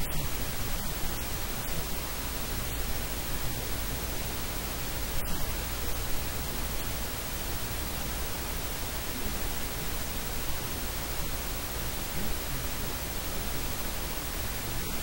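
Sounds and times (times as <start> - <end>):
steady static hiss: 0.0 - 15.0.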